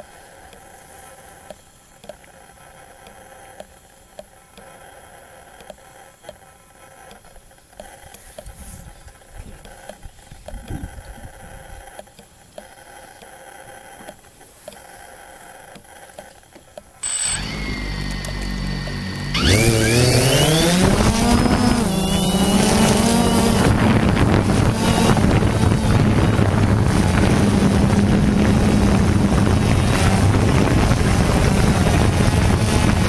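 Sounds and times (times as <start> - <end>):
soft ticks: 0.0 - 16.9
drone rotor motors whirring: 17.0 - 33.0
faint electronic hum: 17.0 - 33.0
low rumbles: 17.0 - 33.0.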